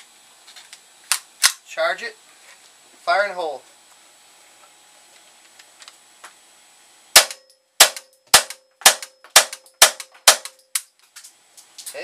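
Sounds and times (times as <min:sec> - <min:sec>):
rifle shots: 0:07.2 - 0:10.6.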